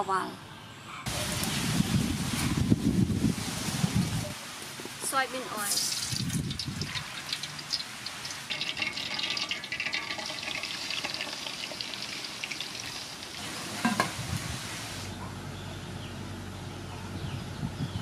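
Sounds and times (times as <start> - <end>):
oil crackling: 5.6 - 14.2
liquid splashing: 5.6 - 15.0
oil pouring into pot: 5.8 - 14.2
metal lid clanking: 13.7 - 14.2.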